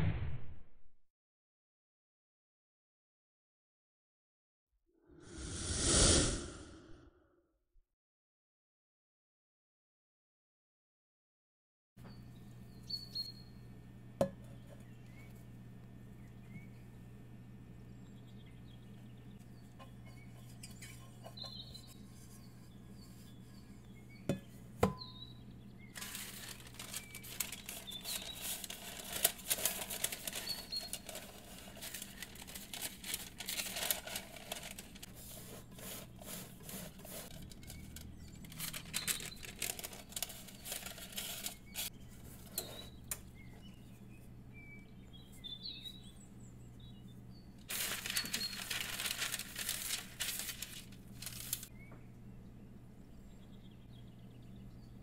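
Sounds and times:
faint birdsong chirps: 12.0 - 55.0
parchment paper crinkling: 25.9 - 42.9, 47.7 - 51.7.

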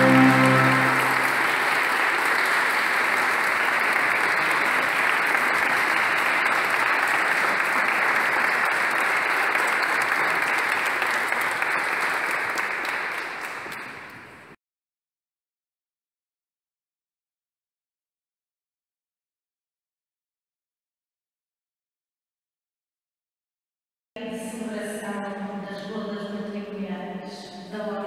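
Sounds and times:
crowd clapping: 0.0 - 14.4.

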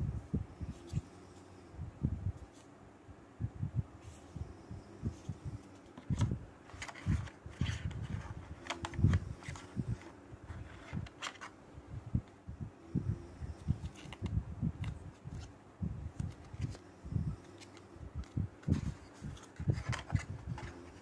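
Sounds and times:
card and plastic clicks and scrapes: 5.6 - 11.6, 13.6 - 15.5, 16.1 - 16.8, 17.4 - 21.0
soft handling bumps: 13.6 - 21.0.

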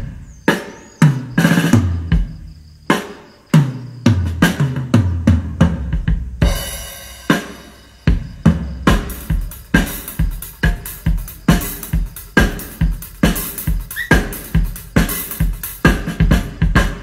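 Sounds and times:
kick drum with heavy bass: 5.1 - 6.8, 8.1 - 17.0.

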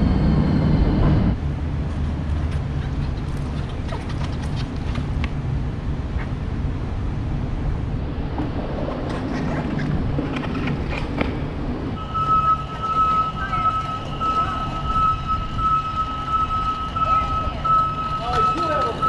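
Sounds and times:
low traffic rumble: 0.0 - 19.0
high electronic tone: 12.0 - 19.0.

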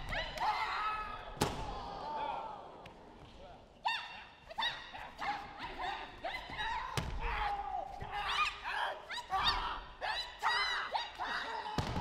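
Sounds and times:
sharp high-pitched shouts: 3.8 - 12.0.

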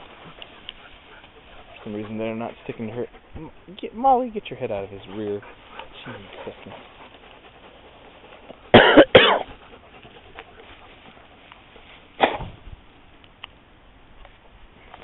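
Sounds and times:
dog barking harshly: 8.7 - 9.5.

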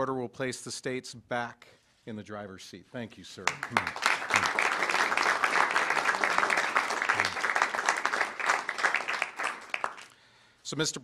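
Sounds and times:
people clapping: 3.4 - 10.2.

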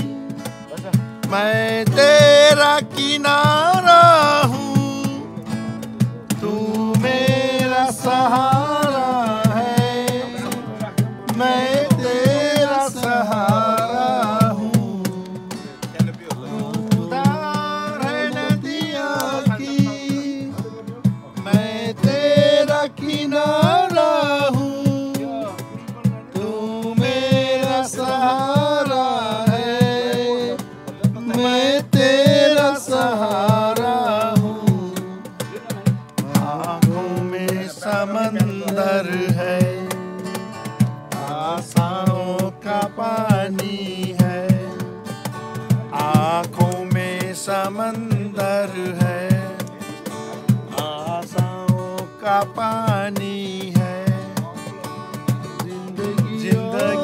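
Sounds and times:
cajon beat: 0.0 - 57.0
man singing: 0.0 - 57.0
strummed acoustic guitar: 0.0 - 57.0.

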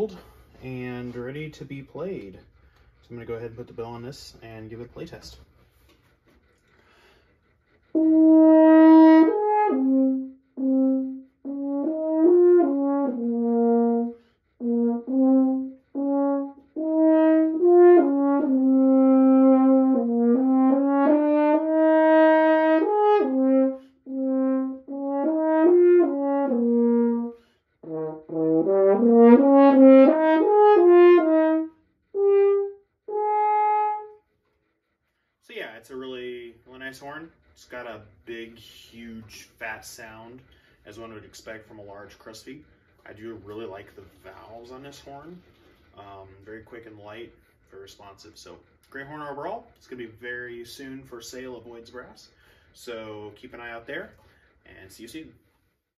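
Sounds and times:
player breathing: 6.5 - 7.6
french horn playing: 7.8 - 35.0.

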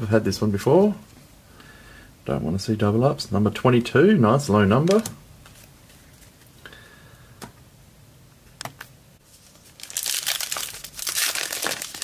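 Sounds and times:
wrapper crinkling and tearing: 9.3 - 12.0.

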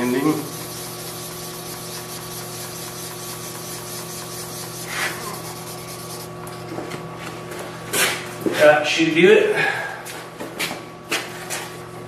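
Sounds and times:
sandpaper scraping car paint: 0.0 - 6.4
steady low hum: 0.0 - 12.0.

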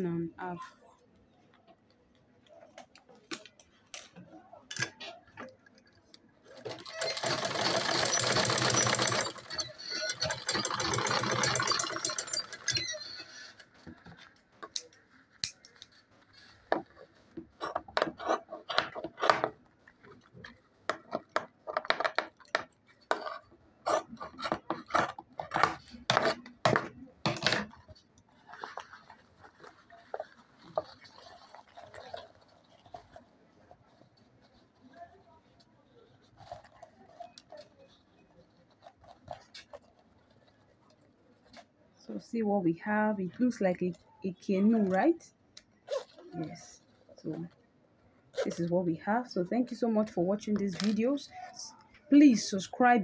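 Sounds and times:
sewing machine stitching: 6.5 - 13.6.

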